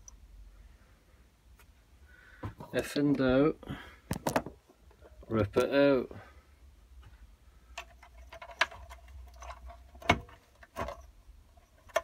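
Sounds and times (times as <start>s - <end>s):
clicks and knocks of plastic connectors: 4.1s - 5.8s, 7.0s - 12.0s.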